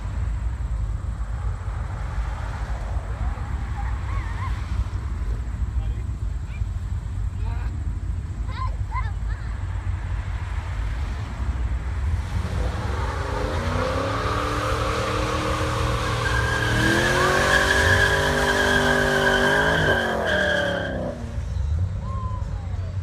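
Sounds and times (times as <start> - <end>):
car engine revving hard: 12.2 - 21.3
tyres squealing: 13.4 - 21.3.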